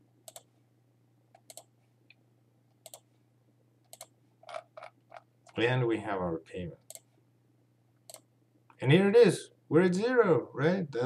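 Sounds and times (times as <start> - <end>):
computer mouse clicks: 0.2 - 0.5, 1.3 - 3.1, 3.8 - 5.6, 6.8 - 7.1, 8.0 - 8.3.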